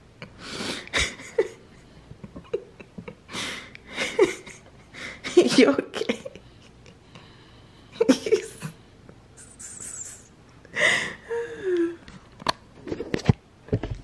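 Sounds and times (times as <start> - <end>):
person breathing: 3.3 - 4.2, 6.3 - 8.0, 8.6 - 12.0.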